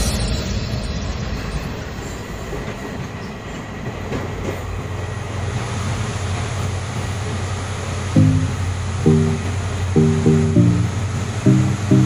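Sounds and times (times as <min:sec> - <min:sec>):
train wheels rumbling on rails: 0:01.7 - 0:07.4.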